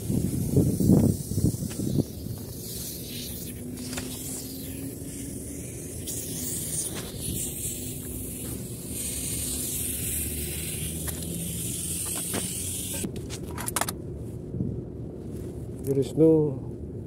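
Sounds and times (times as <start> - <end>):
refrigerant gas hissing: 0.0 - 13.1.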